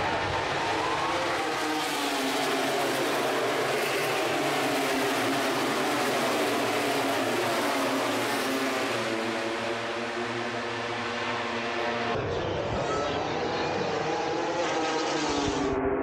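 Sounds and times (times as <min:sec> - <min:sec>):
racing motorcycles passing: 0:00.0 - 0:12.2.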